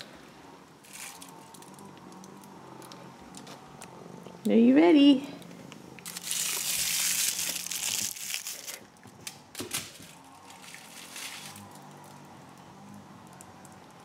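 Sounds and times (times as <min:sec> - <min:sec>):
aluminium foil crackling: 0:00.8 - 0:03.6, 0:06.0 - 0:14.0.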